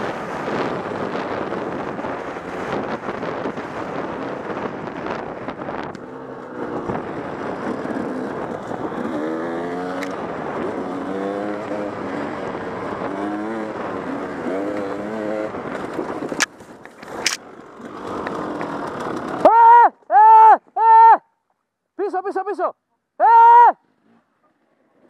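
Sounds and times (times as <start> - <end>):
dirt bike engine revving: 0.0 - 19.6.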